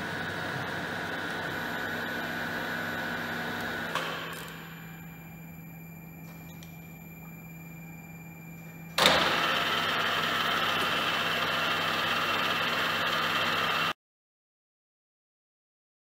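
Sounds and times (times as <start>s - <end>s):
low steady hum: 0.0s - 9.1s
milling machine running: 0.0s - 14.0s.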